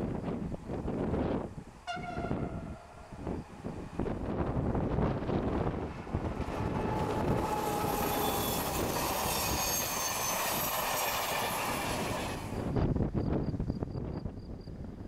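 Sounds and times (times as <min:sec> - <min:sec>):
diesel locomotive passing: 0:00.0 - 0:12.8
train wheels clattering on rails: 0:05.4 - 0:12.7
train wheels squealing: 0:06.5 - 0:12.8.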